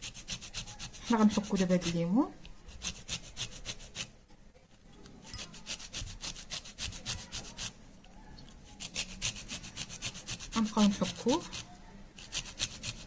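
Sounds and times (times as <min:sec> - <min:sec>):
peel rasping on metal grater: 0:00.0 - 0:02.0, 0:02.7 - 0:04.1, 0:05.4 - 0:07.7, 0:08.8 - 0:13.0.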